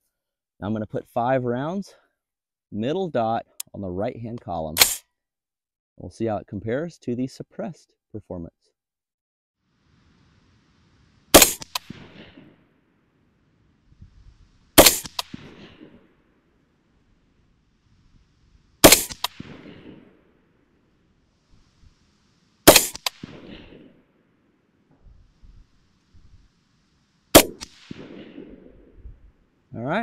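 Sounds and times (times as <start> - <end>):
rifle shots: 4.8 - 5.0, 11.3 - 12.6, 14.8 - 16.1, 18.8 - 20.3, 22.6 - 24.0, 27.3 - 28.9.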